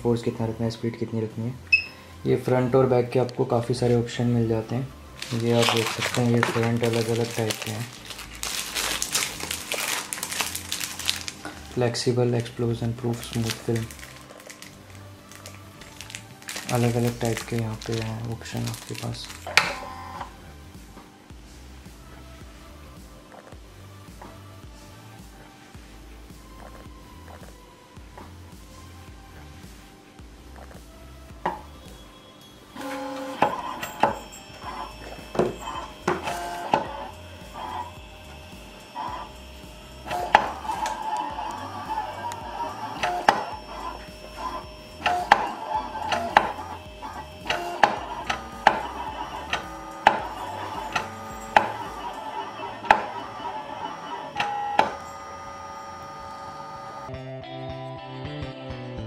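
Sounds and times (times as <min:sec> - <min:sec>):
cutting plotter motors whining: 0:04.6 - 0:20.5, 0:32.8 - 0:57.1.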